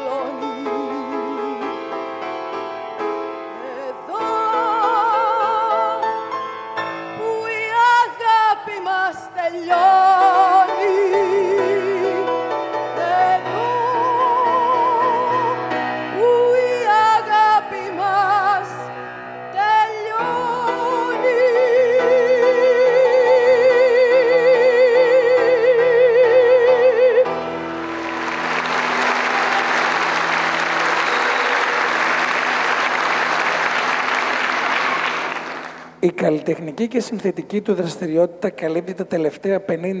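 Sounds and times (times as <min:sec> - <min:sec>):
woman singing with vibrato: 0:00.0 - 0:01.7, 0:03.6 - 0:06.0, 0:07.2 - 0:12.3, 0:13.0 - 0:27.3
piano: 0:00.0 - 0:40.0
audience applause: 0:27.8 - 0:35.9.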